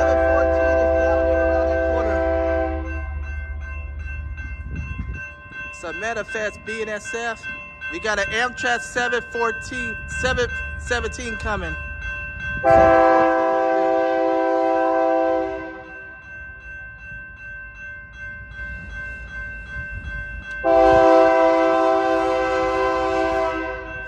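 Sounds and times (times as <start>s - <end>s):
locomotive air horn blasts: 0.0s - 3.1s, 12.6s - 16.0s, 20.6s - 24.0s
low rumble of passing train: 0.0s - 24.0s.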